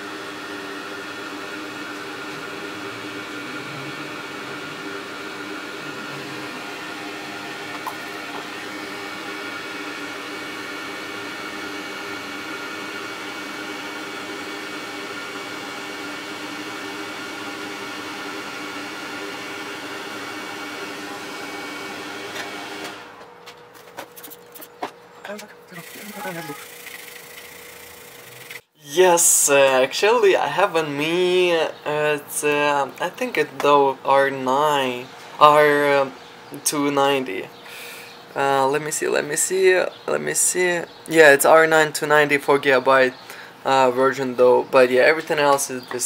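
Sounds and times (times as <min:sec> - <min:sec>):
hot air blower with fan hum: 0:00.0 - 0:46.0.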